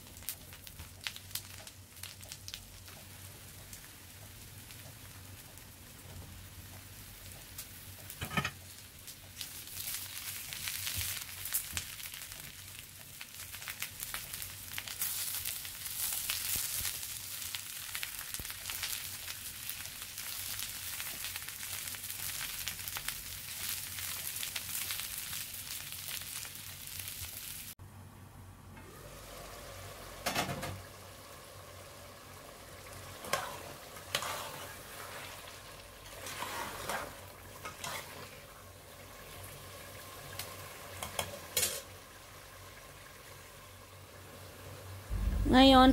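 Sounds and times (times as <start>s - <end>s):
vegetables frying in oil: 0.0s - 27.8s, 29.0s - 45.9s
stew being stirred with ladle: 33.1s - 38.5s.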